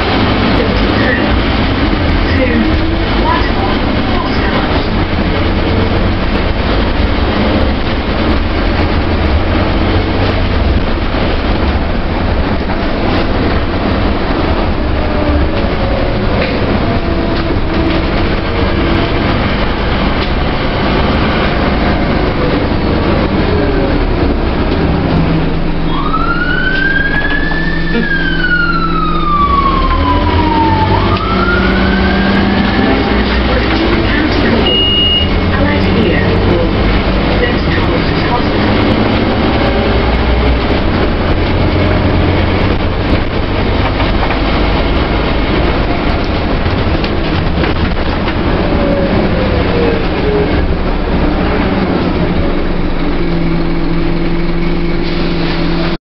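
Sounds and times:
bus engine and road noise: 0.0s - 56.0s
siren wailing: 25.3s - 36.8s.

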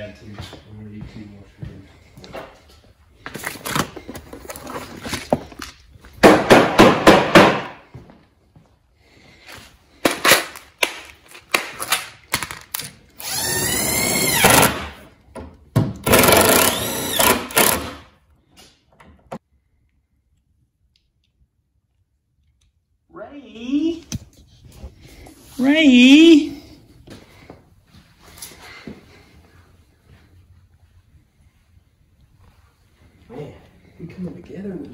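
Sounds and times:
power drill driving screws: 13.2s - 14.9s, 16.0s - 18.1s.

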